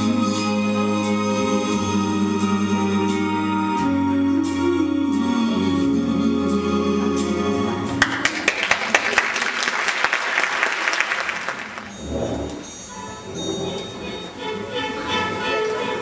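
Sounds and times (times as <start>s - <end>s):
band music: 0.0s - 8.2s
audience applauding: 8.0s - 12.0s.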